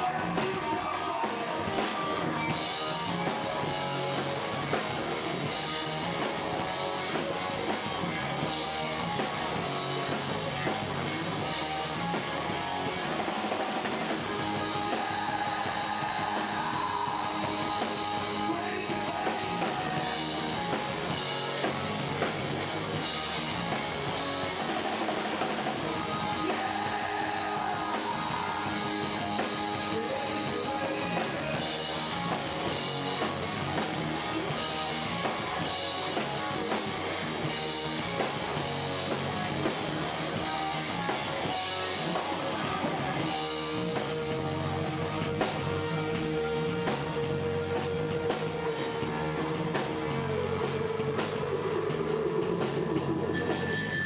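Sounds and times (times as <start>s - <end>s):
bass guitar: 0.0s - 54.0s
drum kit: 0.0s - 54.0s
electric guitars: 0.0s - 54.0s.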